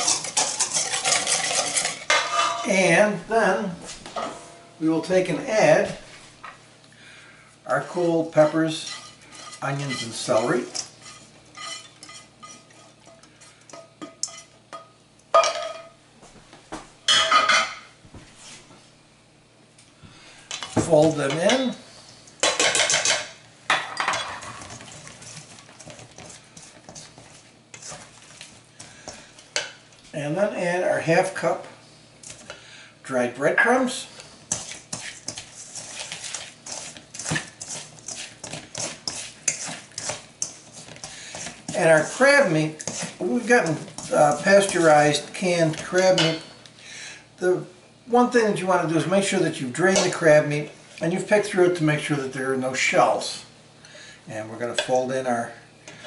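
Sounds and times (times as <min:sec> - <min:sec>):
spatula scraping skillet: 0:00.0 - 0:03.0, 0:07.8 - 0:14.6, 0:22.4 - 0:29.8, 0:33.6 - 0:46.5.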